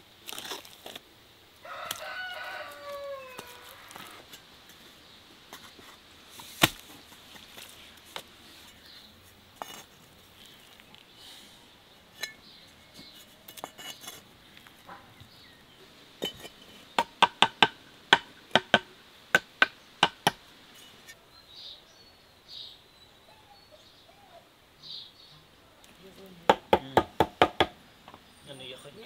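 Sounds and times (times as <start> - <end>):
steel trowel clinking on bricks: 12.1 - 14.2, 16.2 - 16.8.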